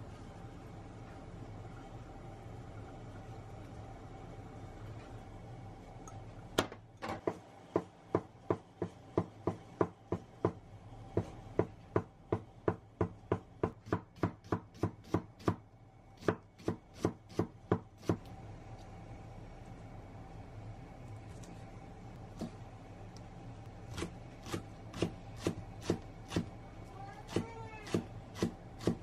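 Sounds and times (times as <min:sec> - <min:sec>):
knife chopping on wooden board: 0:11.2 - 0:15.6.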